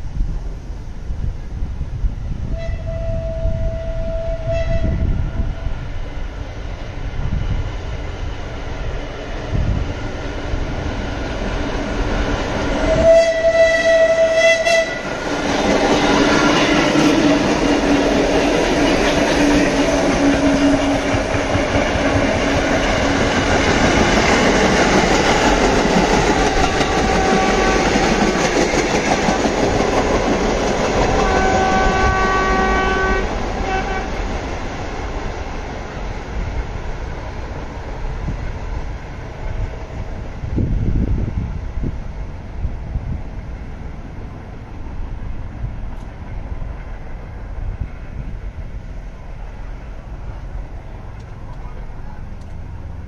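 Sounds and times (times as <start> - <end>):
train wheels rolling past: 0.2 - 53.0
subway train horn: 2.3 - 6.0, 11.6 - 34.7.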